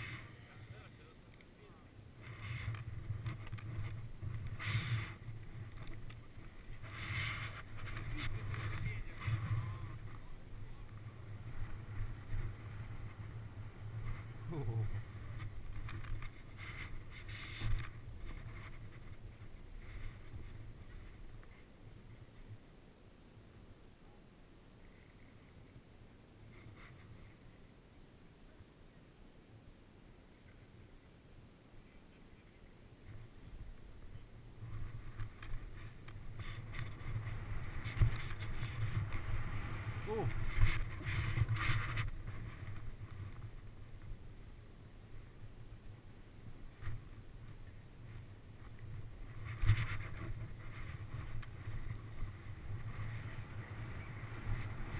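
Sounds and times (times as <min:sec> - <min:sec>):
snowboard sliding through snow: 0:02.2 - 0:22.2, 0:34.5 - 0:44.4, 0:45.2 - 0:54.9
wind rushing over microphone: 0:33.2 - 0:44.2.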